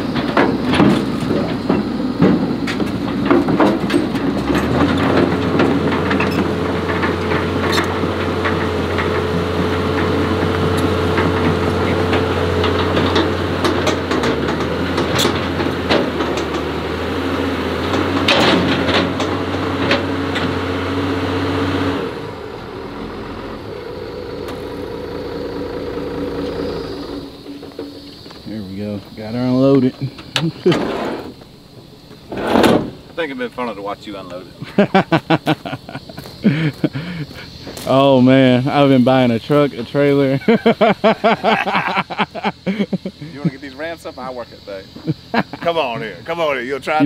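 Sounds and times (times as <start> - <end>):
heavy equipment engine running: 0.0 - 47.0.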